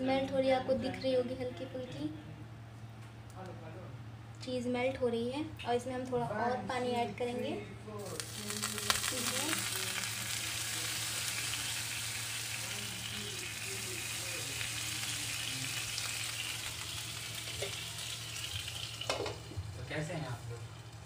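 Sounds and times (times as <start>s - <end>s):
water sizzling in frying pan: 8.0s - 21.0s.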